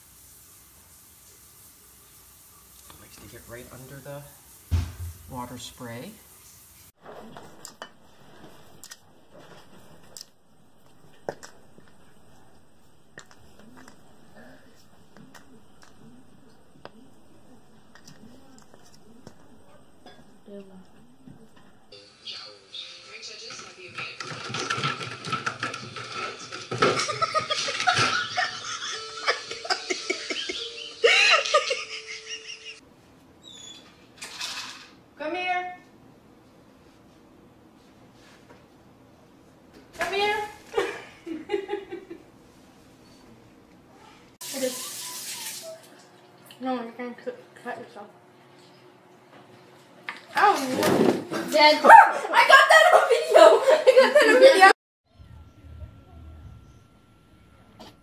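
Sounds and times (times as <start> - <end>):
people laughing and giggling: 26.9 - 32.8, 40.7 - 42.2, 52.5 - 54.8.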